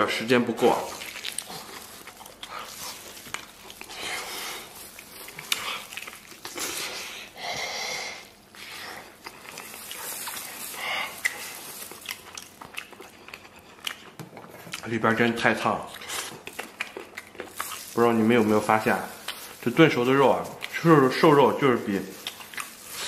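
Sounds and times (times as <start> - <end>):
chewing and smacking: 0.7 - 7.4, 8.4 - 21.3, 21.9 - 23.0
breaths: 10.7 - 11.2.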